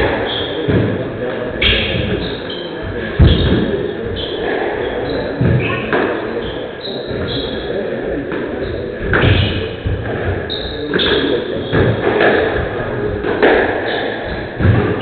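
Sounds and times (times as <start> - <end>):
murmur in a hall: 0.0 - 15.0
squash ball knocks: 9.0 - 15.0.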